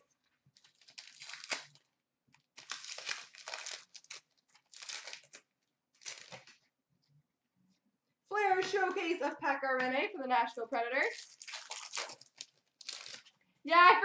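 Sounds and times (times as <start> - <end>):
cards rustling: 0.5 - 6.7, 11.1 - 13.4
wrapper tearing and crinkling: 0.6 - 6.6, 11.1 - 13.4.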